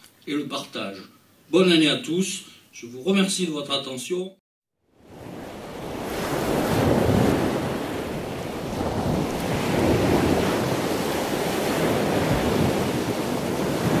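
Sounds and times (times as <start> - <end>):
waves washing in: 4.9 - 14.0.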